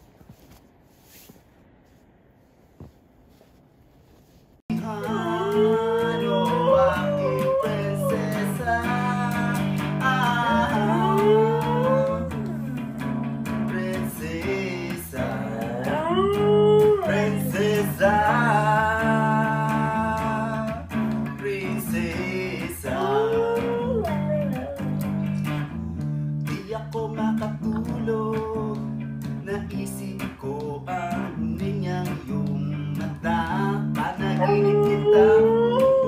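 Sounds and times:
electric guitar: 0:04.7 - 0:36.0
man singing: 0:04.7 - 0:36.0
dog howling: 0:04.8 - 0:12.9, 0:15.4 - 0:18.1, 0:22.5 - 0:25.4, 0:34.2 - 0:36.0.

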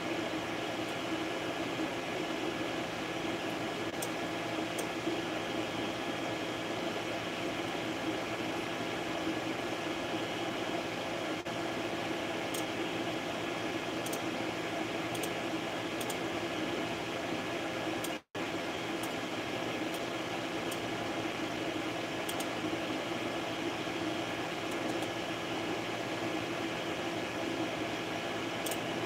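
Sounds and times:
cooling fans whirring: 0:00.0 - 0:29.0.

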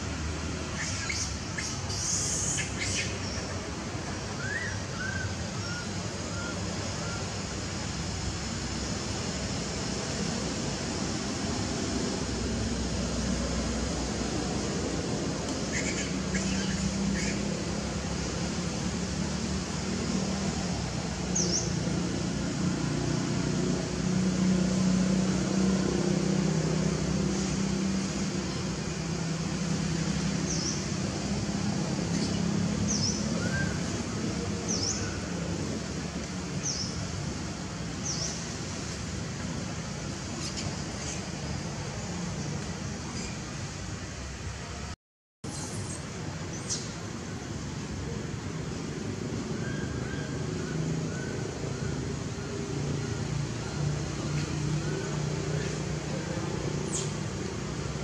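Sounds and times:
steady background hiss: 0:00.0 - 0:58.0
birds chirping: 0:00.7 - 0:03.7, 0:15.6 - 0:17.5, 0:31.9 - 0:35.6.

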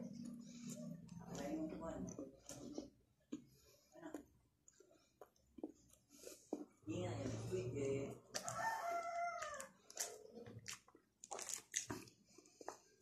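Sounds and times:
rooster crowing: 0:08.4 - 0:09.8.

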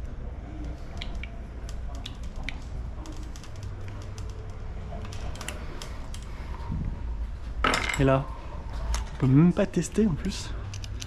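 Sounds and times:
steady low hum: 0:00.0 - 0:11.0
small parts and tools clicking: 0:10.6 - 0:11.0.

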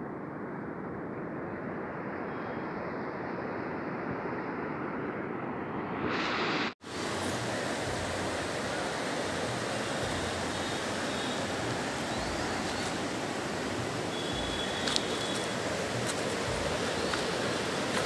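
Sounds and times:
steady rushing noise: 0:00.0 - 0:18.0.

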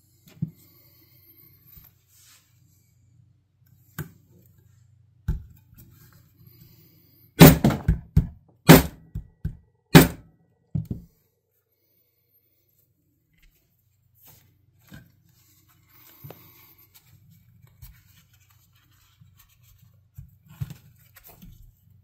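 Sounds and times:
hammer blows on leather: 0:07.4 - 0:09.3, 0:10.0 - 0:10.2.

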